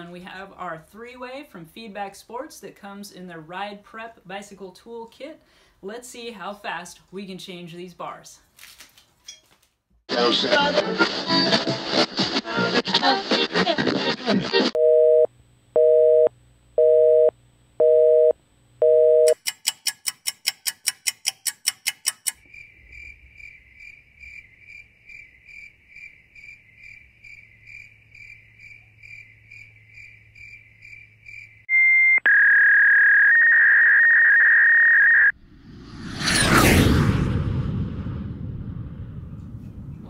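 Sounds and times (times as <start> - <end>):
telephone busy signal: 14.8 - 19.4
fast ticking: 19.3 - 22.4
whoosh: 35.4 - 40.0.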